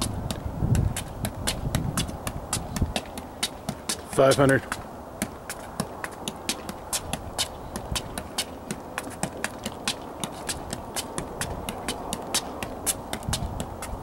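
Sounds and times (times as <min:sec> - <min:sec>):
soccer ball taps on foot: 0:00.0 - 0:14.0.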